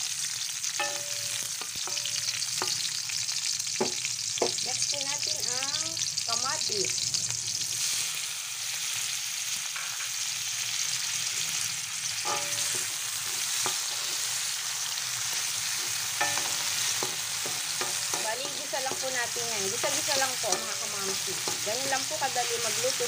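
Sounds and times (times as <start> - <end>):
vegetables sizzling in oil: 0.0 - 23.0
spatula knocking and scraping pan: 0.8 - 3.0, 3.8 - 4.6, 12.2 - 14.3, 15.3 - 22.8.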